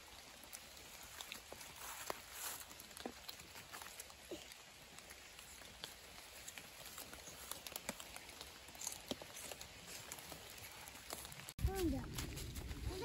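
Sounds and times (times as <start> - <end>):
light rain pattering: 0.0 - 13.0.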